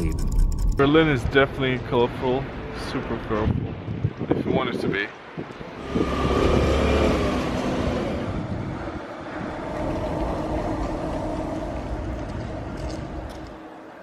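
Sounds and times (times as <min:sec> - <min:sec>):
motor vehicle passing: 0:05.7 - 0:13.8.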